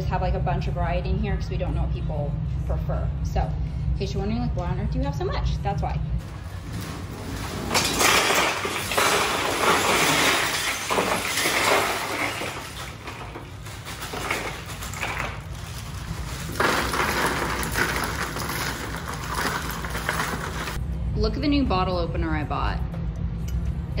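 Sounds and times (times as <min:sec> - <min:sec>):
ice cubes clattering into chest: 0:06.7 - 0:20.8.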